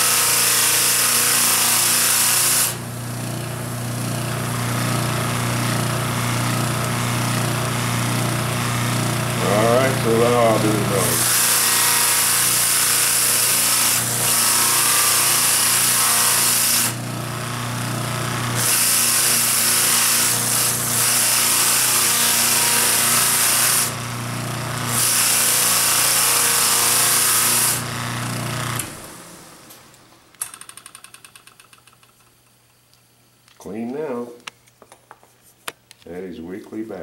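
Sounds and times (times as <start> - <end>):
electric motor humming: 0.0 - 29.3.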